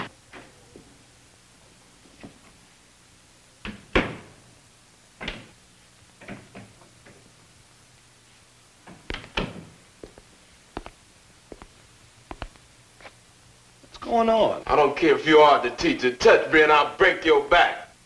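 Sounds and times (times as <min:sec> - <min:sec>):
hard-soled footsteps on hard floor: 0:08.9 - 0:13.2.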